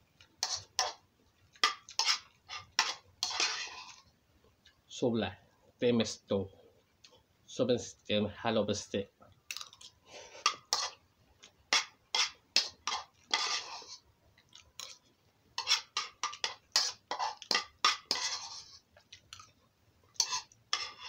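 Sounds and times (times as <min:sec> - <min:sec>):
cutlery scraping plate: 0:00.4 - 0:01.0, 0:01.6 - 0:04.0, 0:10.3 - 0:11.0, 0:11.7 - 0:14.0, 0:15.6 - 0:18.9, 0:20.2 - 0:21.0.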